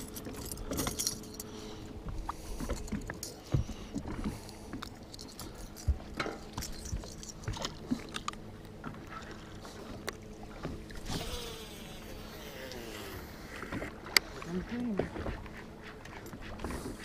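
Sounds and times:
low hum: 0.0s - 17.0s
clicks and knocks on boat deck: 2.1s - 9.0s.

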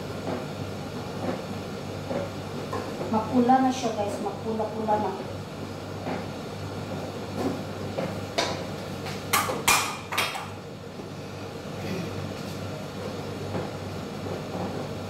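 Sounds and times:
steady low hum: 0.0s - 15.0s
sharp kitchen knocks: 9.3s - 10.5s.

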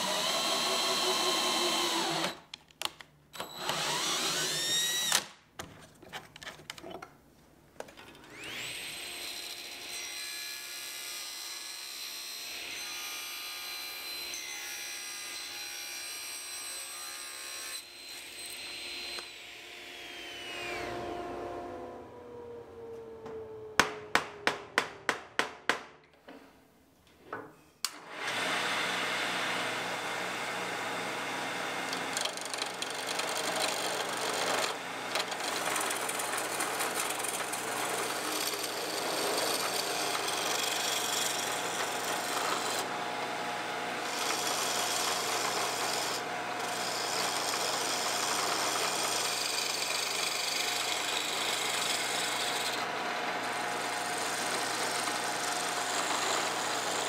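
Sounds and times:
lathe tool cutting wood: 0.0s - 2.4s, 3.5s - 5.1s, 8.3s - 9.5s, 28.1s - 57.0s
lathe motor hum: 37.2s - 48.8s.

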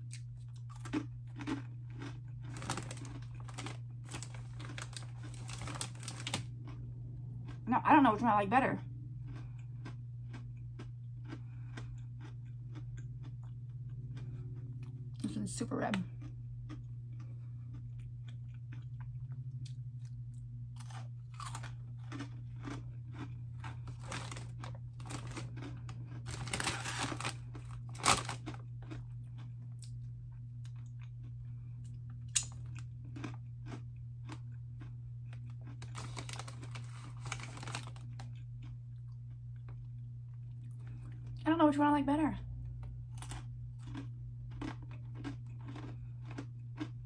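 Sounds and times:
crunching and chewing: 0.0s - 7.7s, 8.8s - 41.4s, 42.6s - 47.0s
steady low hum: 0.0s - 47.0s
snack bag rustling: 0.1s - 6.6s, 20.8s - 29.0s, 35.3s - 38.5s.

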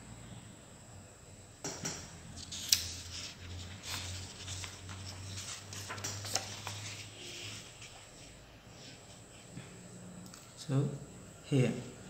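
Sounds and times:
paper page rustling and crackling: 2.4s - 8.0s.

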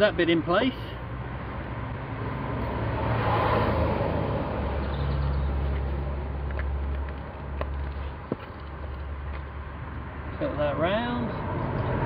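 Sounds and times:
vehicle passing: 0.9s - 12.0s.

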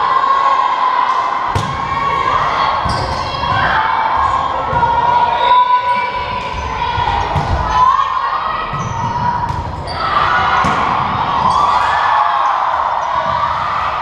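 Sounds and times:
people shouting: 0.0s - 14.0s
volleyball slaps echoing: 1.1s - 3.8s, 7.0s - 7.8s, 8.6s - 11.9s
sneakers squeaking on hardwood: 8.6s - 10.2s.

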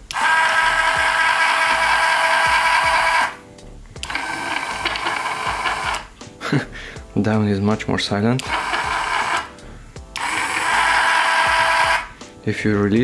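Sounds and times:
electric jack motor whining: 0.0s - 3.4s, 4.0s - 6.1s, 8.4s - 9.5s, 10.1s - 12.2s.

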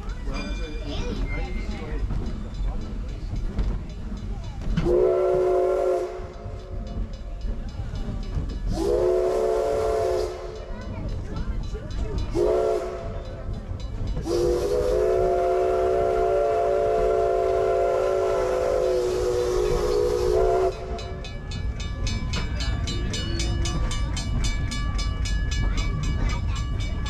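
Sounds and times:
steam locomotive chime whistle: 4.8s - 6.8s, 8.6s - 10.7s, 12.3s - 13.5s, 14.2s - 21.4s.

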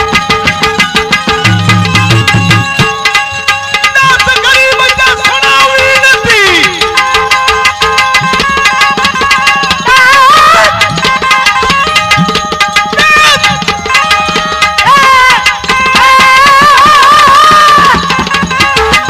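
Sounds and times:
wavering melodic line: 0.0s - 5.7s
held melody notes: 0.0s - 16.4s
tabla fast rhythm: 0.0s - 19.0s.

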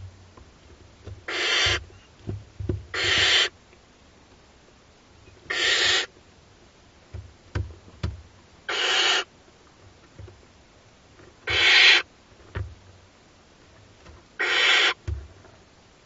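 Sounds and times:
soft knocks on nest box floor: 1.0s - 3.3s, 7.1s - 8.2s, 12.5s - 12.8s, 15.0s - 15.4s
owl chicks hissing calls: 1.2s - 2.1s, 2.9s - 3.6s, 5.5s - 6.1s, 8.7s - 9.3s, 11.4s - 12.1s, 14.4s - 15.1s.

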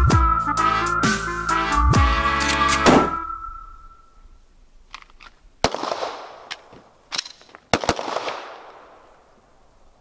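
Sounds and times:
pistol shots with ringing tail: 2.8s - 3.4s, 5.6s - 6.5s, 7.7s - 9.1s
gun handling clicks: 4.9s - 5.4s, 6.4s - 8.8s.

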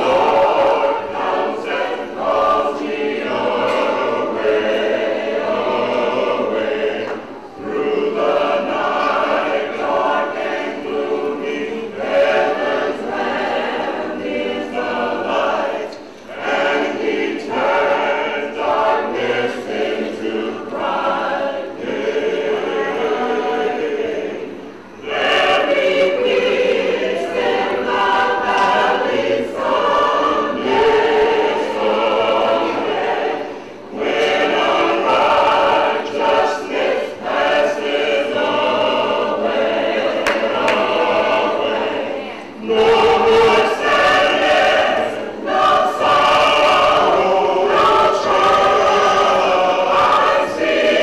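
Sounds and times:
choir singing: 0.0s - 51.0s.

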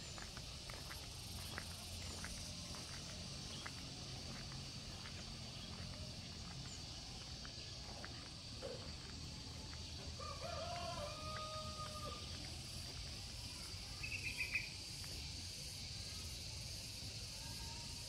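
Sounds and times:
rooster crowing: 10.2s - 12.4s.

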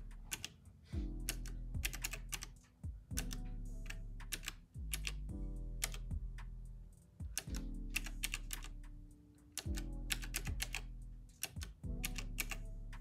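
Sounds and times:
soft background music: 0.0s - 13.0s
calculator keys clicking: 0.3s - 0.6s, 1.2s - 6.1s, 7.2s - 8.9s, 9.5s - 12.6s.

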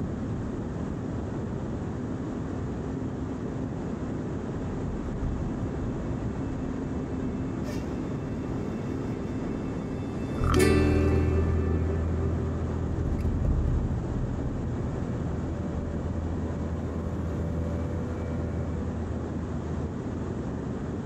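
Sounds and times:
helicopter engine and rotor drone: 11.8s - 21.0s.

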